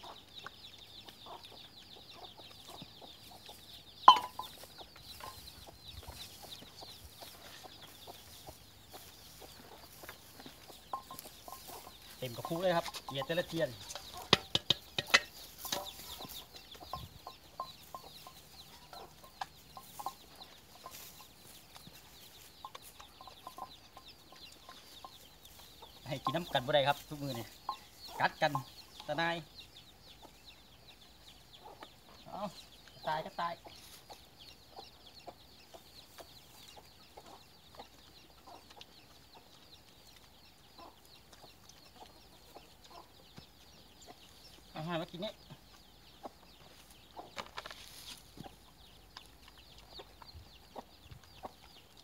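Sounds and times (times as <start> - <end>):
birds chirping: 0.0 - 52.0
high bird chirps: 4.0 - 7.7
sharp clicks and knocks: 13.9 - 15.9.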